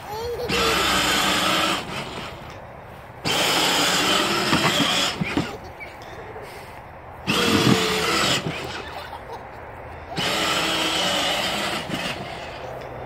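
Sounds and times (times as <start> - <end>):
toy car electric motors whining: 0.4 - 2.6, 3.2 - 5.6, 7.2 - 9.2, 10.2 - 13.0.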